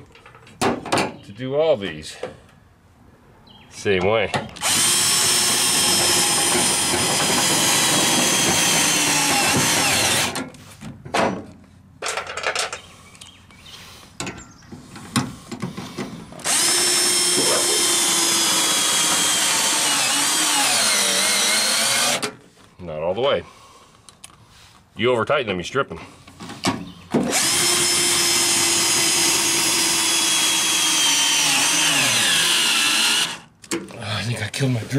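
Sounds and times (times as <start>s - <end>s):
cordless drill driving screws: 4.6s - 10.4s, 16.4s - 22.4s, 27.2s - 33.5s.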